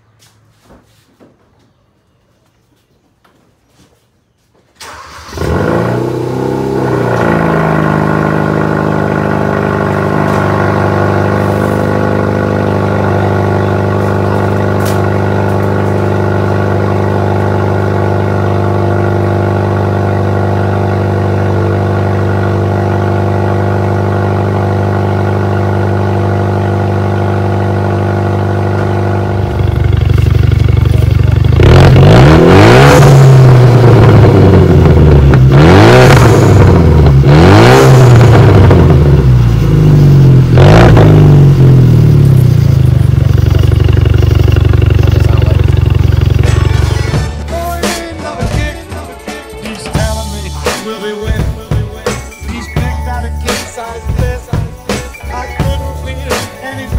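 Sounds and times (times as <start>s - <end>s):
engine revving in quick blips: 4.8s - 16.5s, 29.6s - 47.3s
car engine idling: 4.8s - 47.9s
exhaust pops and crackles: 13.8s - 16.3s, 29.5s - 32.0s, 42.2s - 47.5s.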